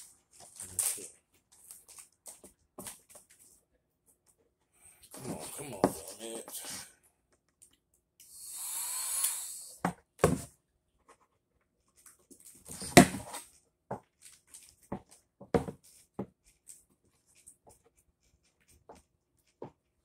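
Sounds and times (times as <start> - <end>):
heat gun blowing: 8.2 - 9.8.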